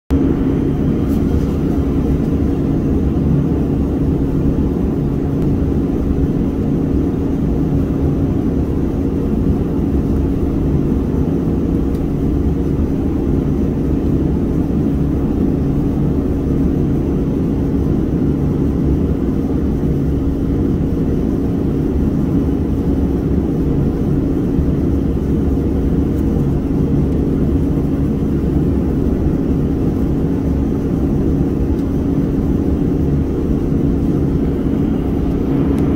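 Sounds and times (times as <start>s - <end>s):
machine humming: 25.5s - 35.9s.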